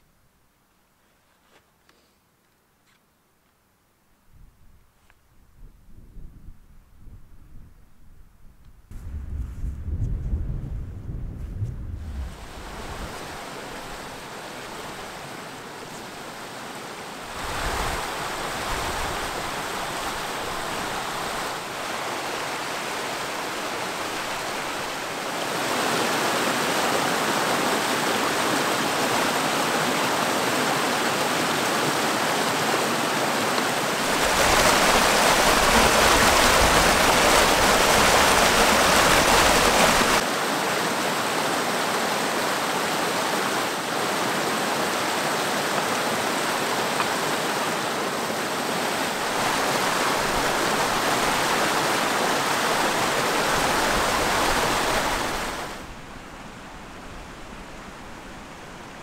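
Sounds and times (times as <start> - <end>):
stream cascading over rocks: 12.3 - 59.0.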